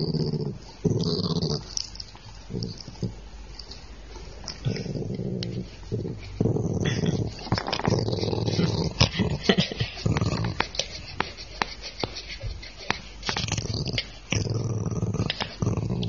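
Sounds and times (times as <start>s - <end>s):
dog growling: 0.0s - 1.7s, 4.6s - 10.6s, 13.3s - 16.0s.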